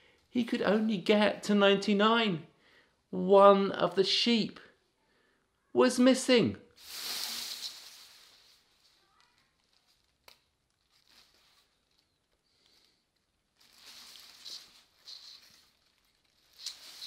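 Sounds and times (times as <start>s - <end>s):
faint rustling: 6.8s - 17.0s.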